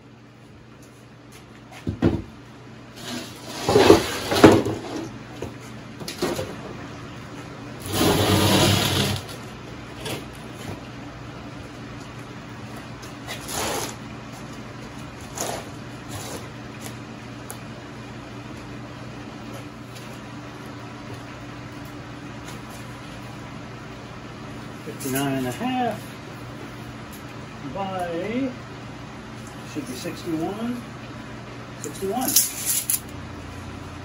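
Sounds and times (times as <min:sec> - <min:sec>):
wooden boards knocking and thumping: 0:01.8 - 0:02.3, 0:03.6 - 0:05.0
board scraping on concrete: 0:03.0 - 0:05.1, 0:07.8 - 0:09.4, 0:13.3 - 0:14.0.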